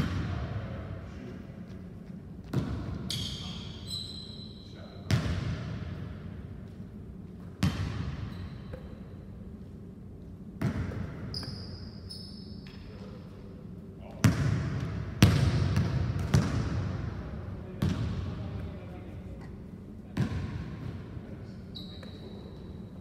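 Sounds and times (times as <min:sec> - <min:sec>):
sneakers squeaking on court: 0:02.0 - 0:05.6, 0:06.6 - 0:09.2, 0:10.6 - 0:13.1, 0:21.6 - 0:23.0
basketball hitting hardwood floor: 0:15.2 - 0:16.7.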